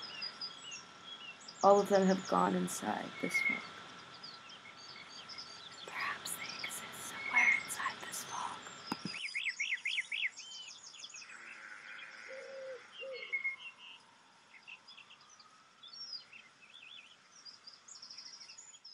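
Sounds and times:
low soft bird notes: 0.0 - 11.4
small birds chirping and trilling: 0.0 - 18.9.

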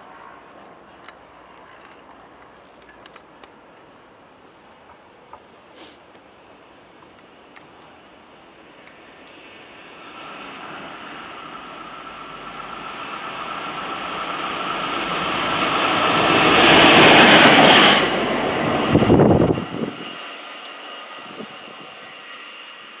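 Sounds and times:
locomotive passing: 8.7 - 23.0.

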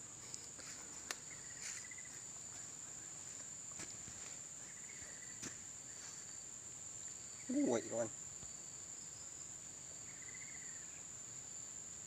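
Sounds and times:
high-pitched insect drone: 7.0 - 11.7.

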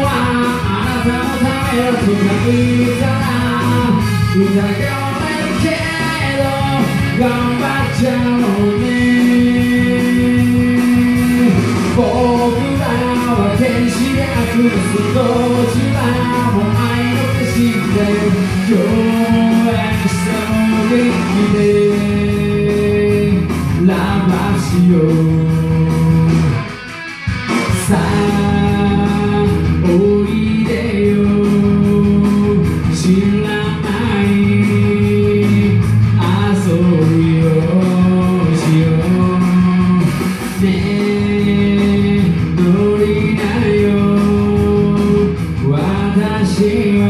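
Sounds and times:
man singing karaoke: 0.0 - 47.0
rock backing track with guitar: 0.0 - 47.0.

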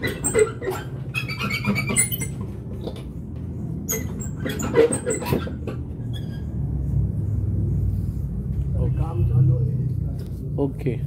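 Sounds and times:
squeaky scrapes and clicks: 0.0 - 3.1, 3.8 - 6.8.

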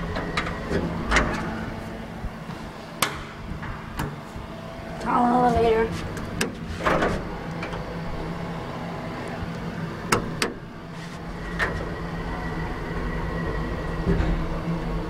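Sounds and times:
low machinery hum: 0.0 - 15.0
thin steady whine: 0.0 - 15.0.

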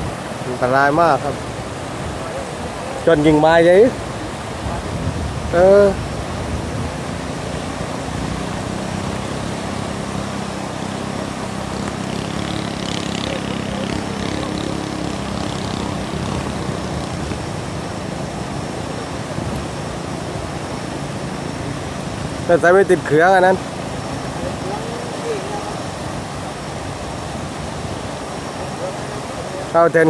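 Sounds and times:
water rushing and churning: 0.0 - 30.0
faint motor hum: 6.5 - 22.4.

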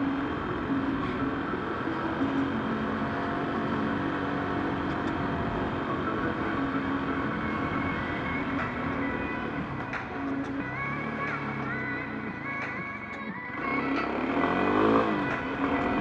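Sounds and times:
car road and engine noise: 0.0 - 16.0.

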